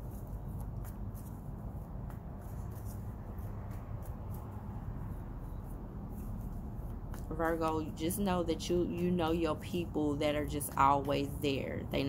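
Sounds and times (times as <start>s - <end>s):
cards being shuffled: 0.0s - 8.0s.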